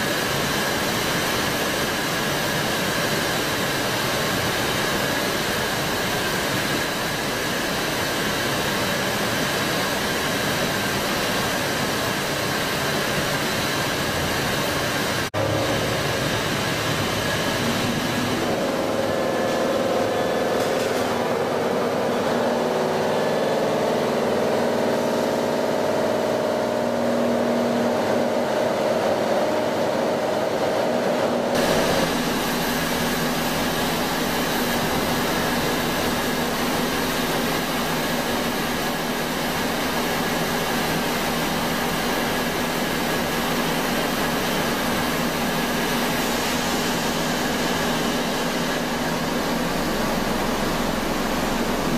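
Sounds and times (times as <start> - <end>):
machine mechanical drone: 13.4 - 51.9
hiss with low hum: 31.1 - 51.9.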